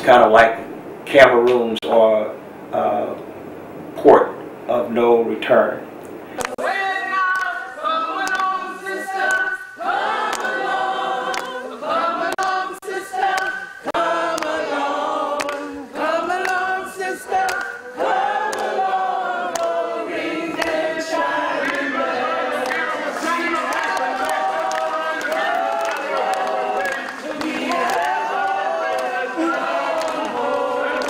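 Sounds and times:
group singing unaccompanied: 6.4 - 31.0.

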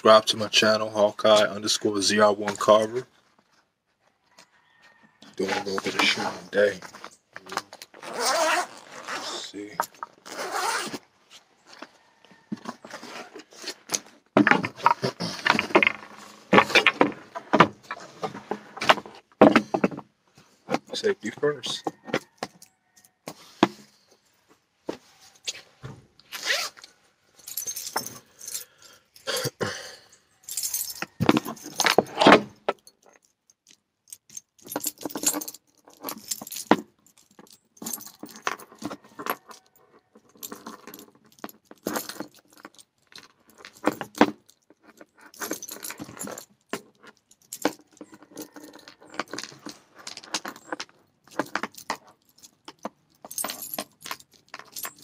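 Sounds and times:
handling scrapes: 5.4 - 19.2, 23.2 - 28.6
keys jangling: 27.4 - 29.3, 30.3 - 55.0.

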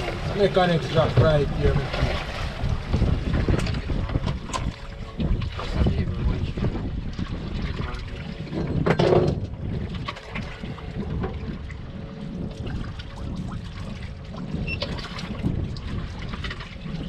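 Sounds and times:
water splash: 0.0 - 6.0
low continuous rumble: 0.0 - 17.0
water sloshing against boat hull: 0.0 - 17.0.

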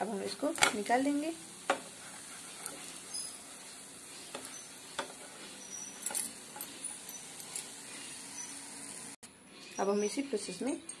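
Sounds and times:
ghee sizzling in a pan: 0.0 - 10.1
spatula scraping a pan: 1.7 - 8.6.

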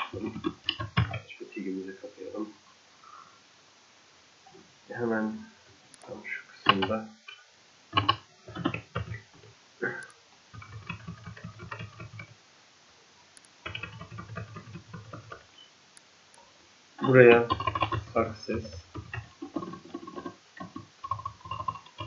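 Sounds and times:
keyboard typing clicks: 0.0 - 1.2, 8.0 - 9.2, 10.0 - 12.3, 13.4 - 15.4.

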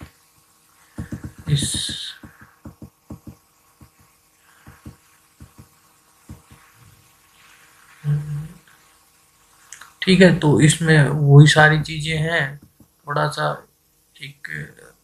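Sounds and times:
quick low thumps: 1.0 - 6.7.

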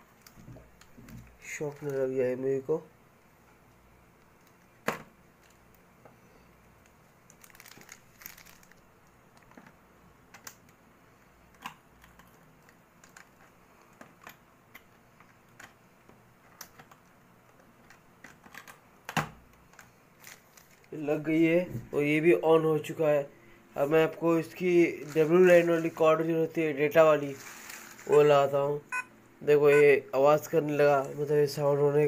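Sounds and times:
cable rustling: 0.0 - 2.2, 6.7 - 10.8, 11.5 - 18.8, 19.5 - 21.1, 23.8 - 28.4.

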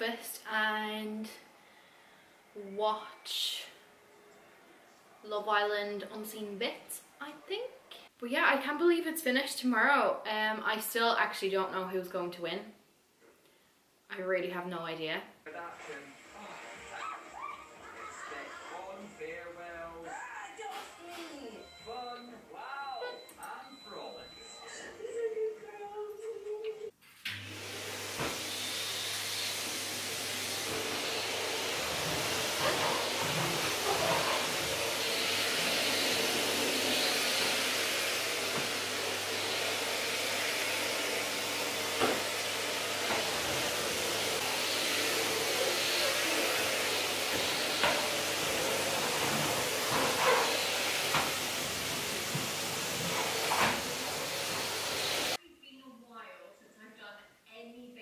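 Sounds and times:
cleaning appliance motor running: 27.4 - 55.4.

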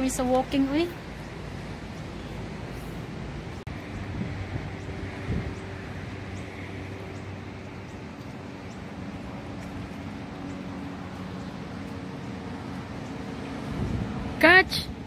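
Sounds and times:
road traffic hum: 0.0 - 15.0
small birds chirping: 3.7 - 13.7.

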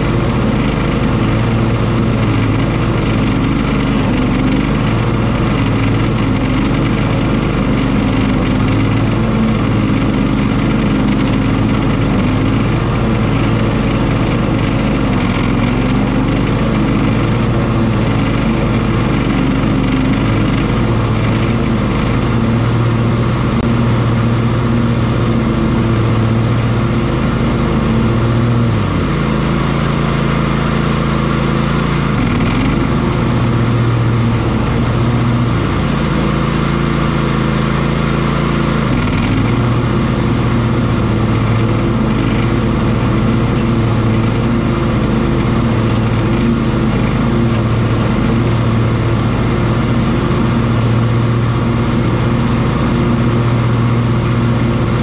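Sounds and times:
riding lawn mower mowing grass: 0.0 - 55.0.

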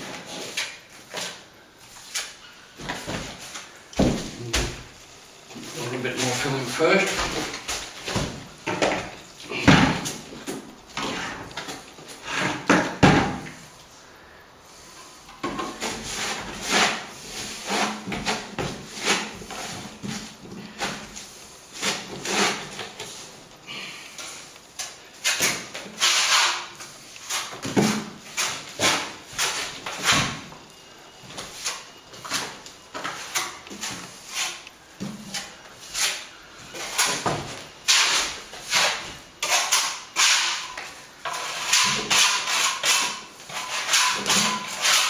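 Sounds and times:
trowel scraping and tapping: 31.6 - 45.0.

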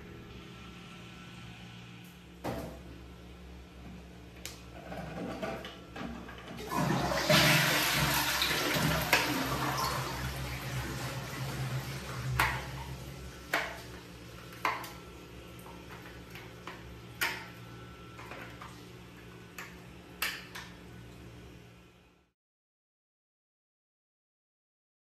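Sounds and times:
water rushing in a toilet tank: 4.7 - 17.4.

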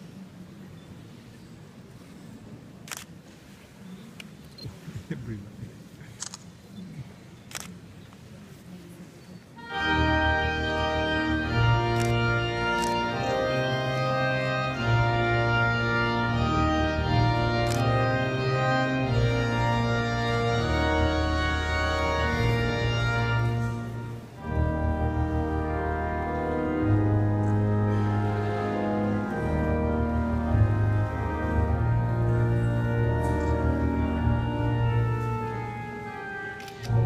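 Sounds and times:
pipe organ playing slow chords: 9.6 - 37.0.

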